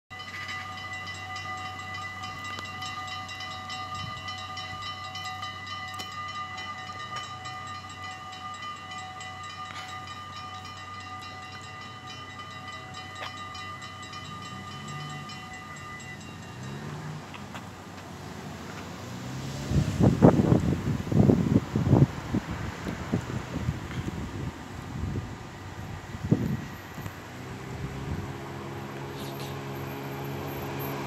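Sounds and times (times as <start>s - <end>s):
level crossing warning bell ringing: 0.1s - 17.9s.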